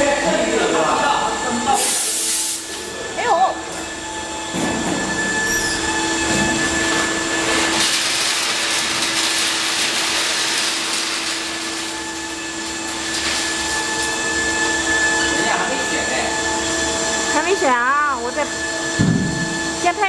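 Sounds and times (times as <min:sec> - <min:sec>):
machine hum with high whine: 0:00.0 - 0:20.0.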